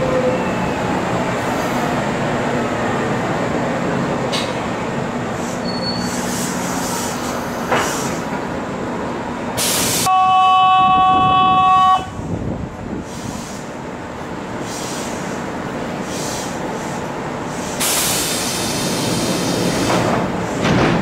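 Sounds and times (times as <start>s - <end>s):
electric train rumbling: 0.0s - 21.0s
train horn blast: 10.1s - 12.3s.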